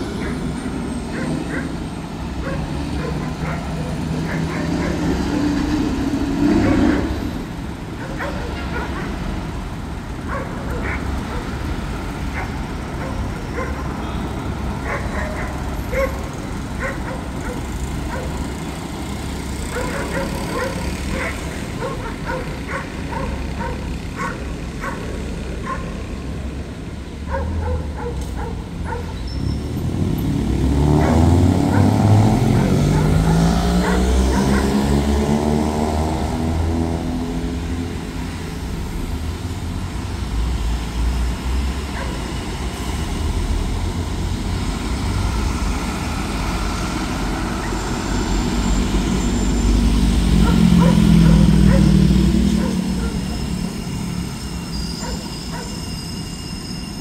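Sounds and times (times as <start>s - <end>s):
street traffic: 0.0s - 57.0s
trucks accelerating: 0.0s - 57.0s
dog barking: 1.1s - 1.8s, 2.4s - 5.5s, 6.6s - 7.1s, 8.0s - 9.2s, 10.3s - 11.6s, 12.3s - 14.1s, 14.8s - 18.5s, 19.6s - 26.0s, 27.2s - 29.2s, 31.0s - 35.0s, 41.9s - 42.3s, 50.3s - 53.4s, 55.0s - 55.9s.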